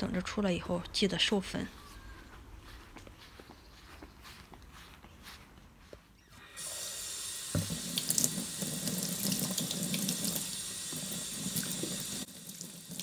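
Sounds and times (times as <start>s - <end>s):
tap running into metal sink: 7.4s - 8.5s.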